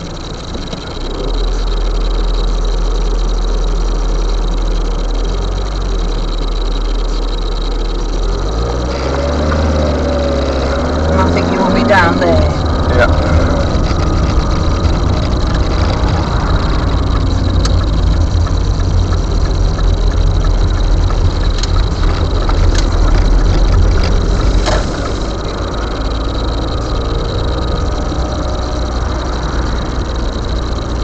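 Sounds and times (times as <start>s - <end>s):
car engine and road rumble: 0.0s - 31.0s
faint clicks: 13.6s - 31.0s.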